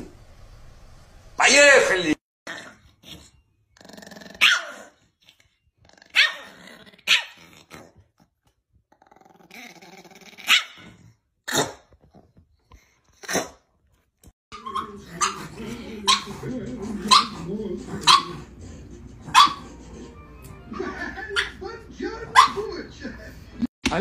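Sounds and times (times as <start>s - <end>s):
television soundtrack: 0.0s - 13.6s, 14.5s - 24.0s
dog growling: 2.5s - 8.3s, 8.9s - 11.8s, 14.6s - 21.4s
small dogs barking: 4.4s - 5.0s, 6.0s - 7.5s, 10.4s - 10.9s, 14.5s - 18.6s, 19.2s - 19.8s, 22.3s - 22.7s.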